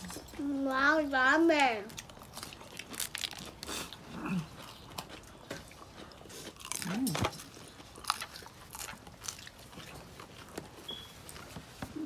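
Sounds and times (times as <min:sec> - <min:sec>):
crunchy biting and chewing: 0:01.9 - 0:12.0.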